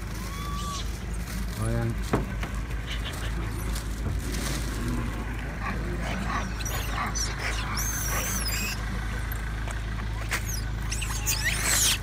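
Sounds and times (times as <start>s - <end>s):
shrill animal scream: 0.1s - 0.9s, 6.1s - 8.8s, 10.2s - 12.0s
animal squeals and calls: 0.1s - 1.0s, 2.8s - 3.8s, 5.6s - 8.9s, 10.0s - 12.0s.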